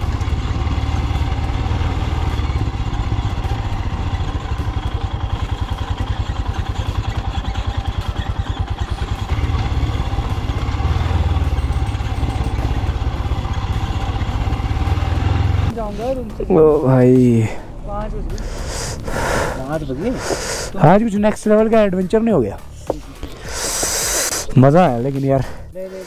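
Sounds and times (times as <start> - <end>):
motorcycle engine running: 0.0 - 25.6.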